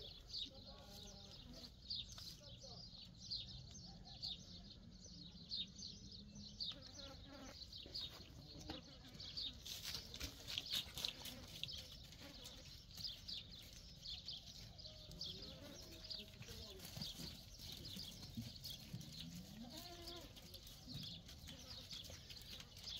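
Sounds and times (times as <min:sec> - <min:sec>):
rustling: 0:09.2 - 0:13.9
goats bleating: 0:19.2 - 0:20.6.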